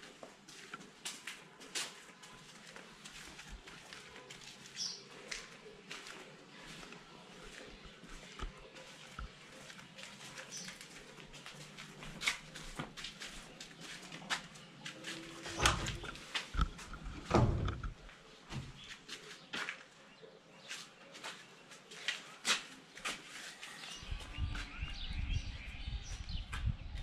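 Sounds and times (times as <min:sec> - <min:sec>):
footsteps on gritty concrete: 0:00.0 - 0:17.1, 0:20.7 - 0:26.9
wooden window knocking open: 0:15.5 - 0:18.0.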